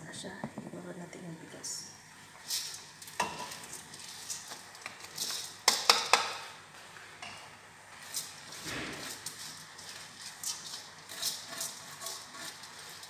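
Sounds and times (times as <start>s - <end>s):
colander knocking on metal pot: 5.7s - 6.4s.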